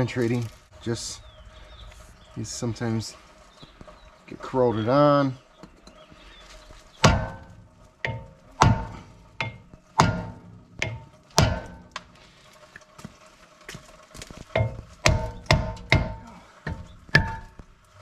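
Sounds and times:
mallet striking ringing metal disc: 0:07.0 - 0:12.0, 0:14.6 - 0:17.6.

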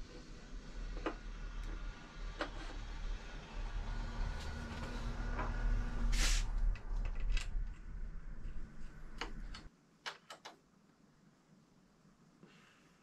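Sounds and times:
low background rumble: 0:00.0 - 0:09.7.

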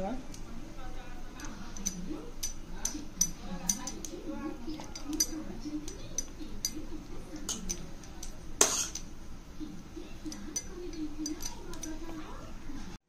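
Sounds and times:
spoon clinking against metal bowl: 0:01.3 - 0:09.1, 0:10.2 - 0:12.2.

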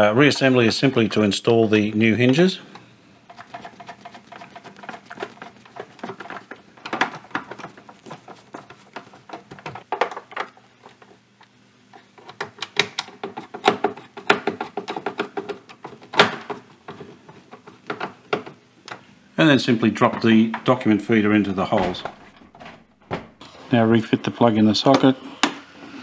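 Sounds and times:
plastic hinges clicking and scraping: 0:03.3 - 0:10.6, 0:12.0 - 0:19.0.

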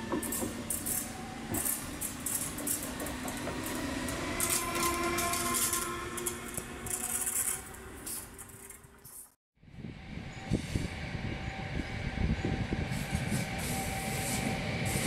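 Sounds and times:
train wheels rattling on rails: 0:00.0 - 0:09.3.

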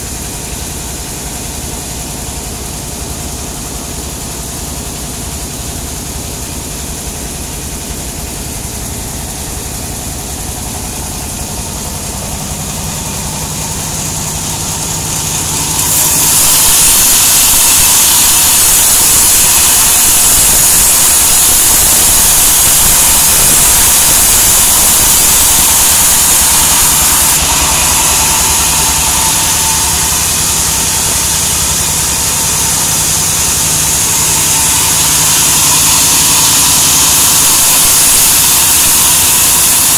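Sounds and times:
loud high hiss: 0:00.0 - 0:39.9
sawmill machine hum: 0:00.0 - 0:39.9.

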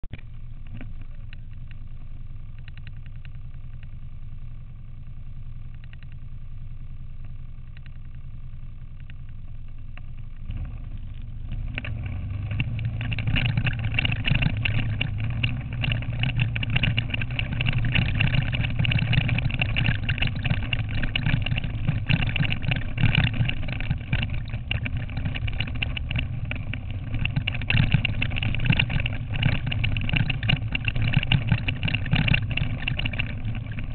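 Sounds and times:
quad bike engine running: 0:00.0 - 0:33.9
dense clatter: 0:10.0 - 0:33.9.

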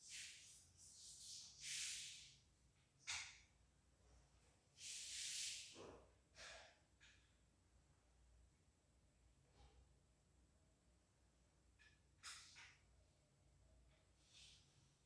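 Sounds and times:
slow hissy breathing: 0:04.8 - 0:05.8.

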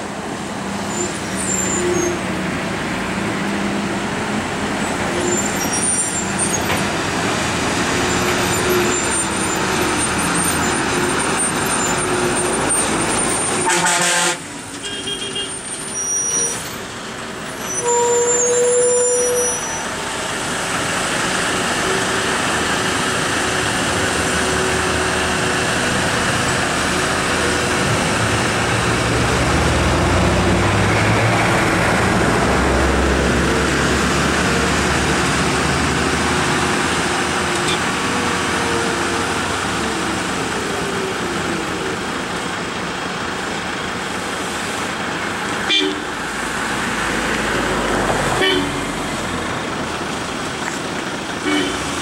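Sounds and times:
diesel lorry engines rumbling: 0:00.0 - 0:52.0
horn toots: 0:13.6 - 0:15.6, 0:45.7 - 0:46.1, 0:48.4 - 0:48.8, 0:51.4 - 0:51.9.

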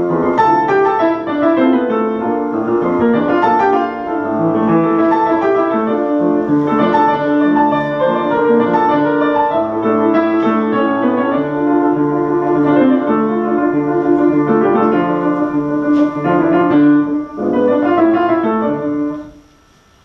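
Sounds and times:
two pianos playing: 0:00.0 - 0:19.8.

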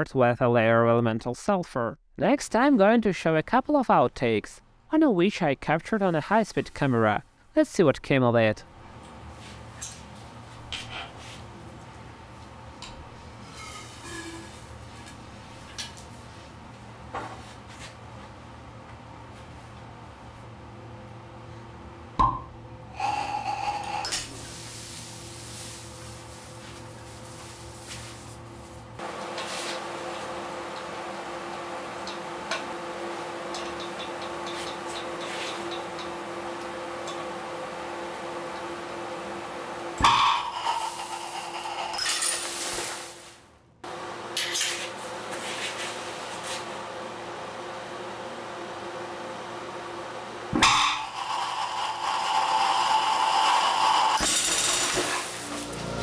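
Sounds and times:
hiss of burning gas: 0:23.0 - 0:28.3, 0:51.0 - 0:55.5.

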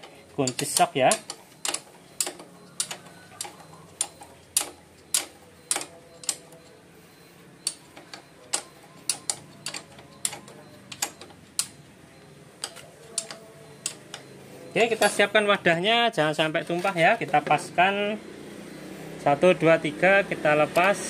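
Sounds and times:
wrench sharp metal clicks: 0:00.4 - 0:06.4, 0:08.5 - 0:11.8, 0:12.6 - 0:14.2.

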